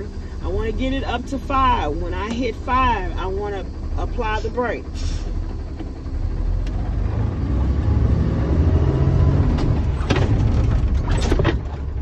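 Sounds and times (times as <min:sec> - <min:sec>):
truck diesel engine rumbling: 0:00.0 - 0:12.0.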